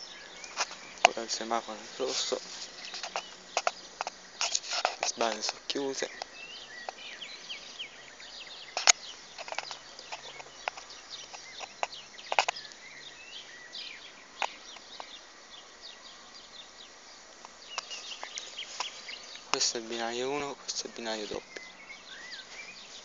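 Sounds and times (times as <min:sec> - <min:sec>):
small birds chirping: 0:00.0 - 0:23.0
sharp clicks: 0:08.8 - 0:12.8.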